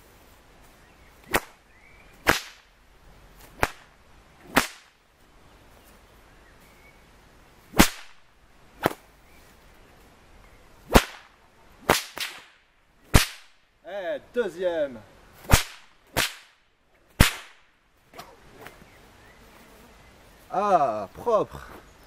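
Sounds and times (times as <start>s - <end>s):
whip cracking: 1.2s - 1.6s, 2.2s - 2.7s, 3.4s - 5.0s, 7.7s - 8.2s, 8.8s - 9.1s, 10.9s - 13.6s, 15.4s - 16.6s, 17.2s - 18.7s.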